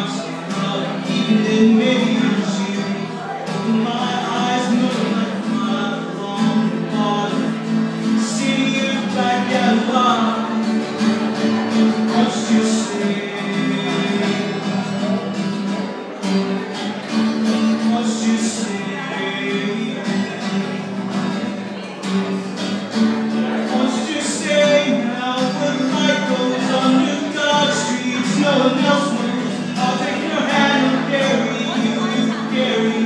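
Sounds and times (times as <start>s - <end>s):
acoustic guitar strummed: 0.0s - 33.0s
man singing: 0.0s - 33.0s.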